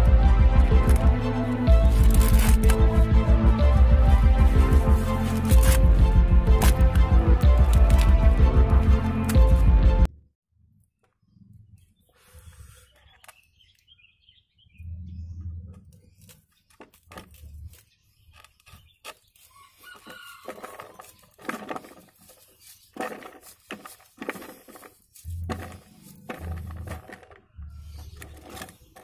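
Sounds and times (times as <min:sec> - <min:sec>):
knife slicing corn kernels: 0:05.1 - 0:05.9
rooster crowing: 0:19.5 - 0:21.1.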